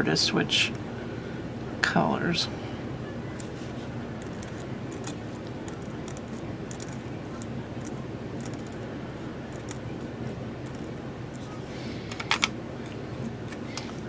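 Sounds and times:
steady low hum: 0.0s - 14.0s
pen nib scratching on glass: 4.2s - 8.8s.

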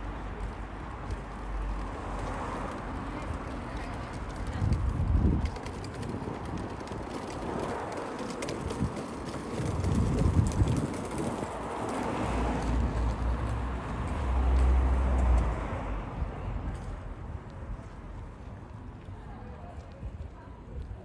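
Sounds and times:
footsteps on stone paving: 0.0s - 15.6s.

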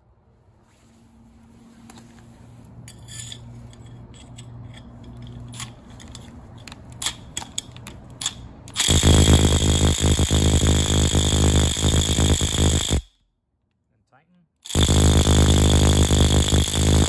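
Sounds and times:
impact driver running: 8.7s - 13.1s, 14.6s - 17.0s.

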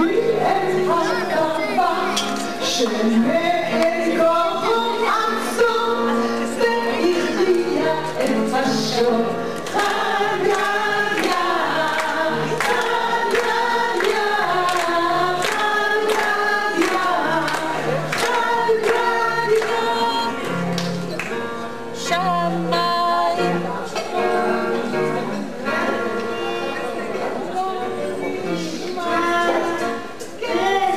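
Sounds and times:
choir singing: 0.0s - 20.4s.

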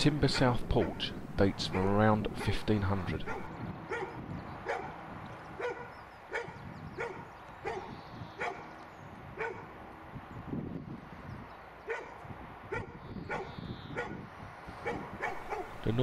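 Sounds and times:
dog barking sharply: 3.3s - 5.0s, 5.6s - 8.6s, 9.4s - 9.6s, 14.8s - 15.8s.

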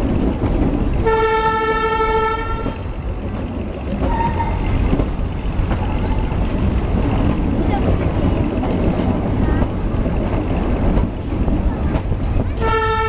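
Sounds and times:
train carriage rumble and clatter: 0.0s - 13.0s
train horn toot: 1.0s - 2.8s, 4.0s - 4.6s, 12.6s - 13.0s.

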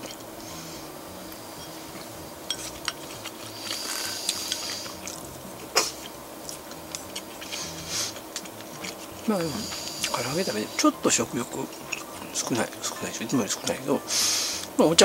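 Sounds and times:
faint steady hum: 0.0s - 15.0s
chewing mouth noises: 1.3s - 13.0s.

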